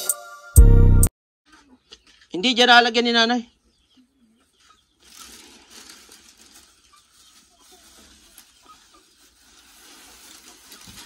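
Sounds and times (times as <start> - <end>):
plastic sack rustling: 4.9 - 11.0
dry feed pattering into bowl: 9.4 - 11.0.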